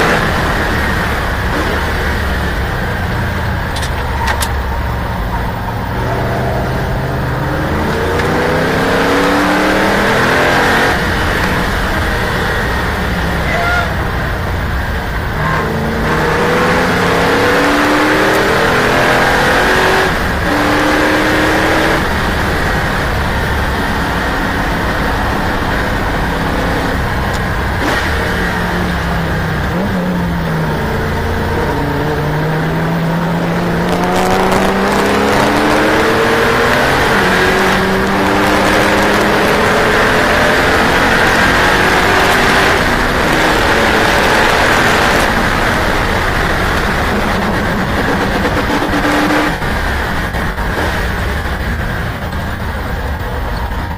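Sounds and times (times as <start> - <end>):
race car engine: 0.0 - 53.9
wind and road noise: 0.0 - 53.9.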